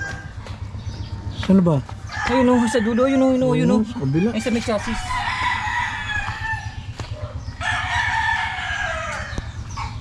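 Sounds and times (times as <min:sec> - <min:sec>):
rooster crowing: 0:00.0 - 0:00.4, 0:02.1 - 0:06.9, 0:07.5 - 0:09.6.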